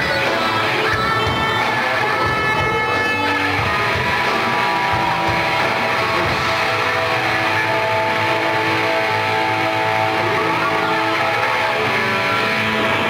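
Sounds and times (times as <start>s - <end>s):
rock band playing live: 0.0s - 13.0s.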